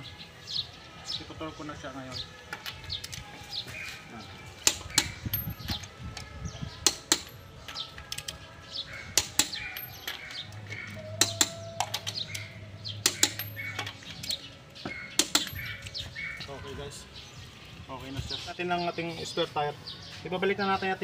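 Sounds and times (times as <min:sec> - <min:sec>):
wrench clinking on wheel nuts: 0:04.6 - 0:08.4, 0:09.2 - 0:16.4.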